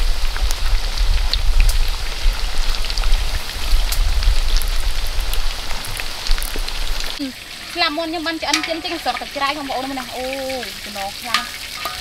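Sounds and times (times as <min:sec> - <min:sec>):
low rumble: 0:00.0 - 0:07.2
chicken wings deep-frying in oil: 0:00.0 - 0:12.0.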